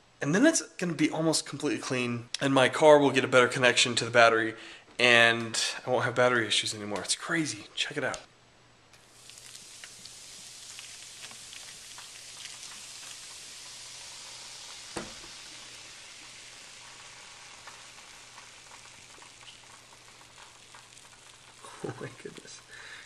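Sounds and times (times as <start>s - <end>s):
cola fizzing hiss: 9.0s - 23.0s.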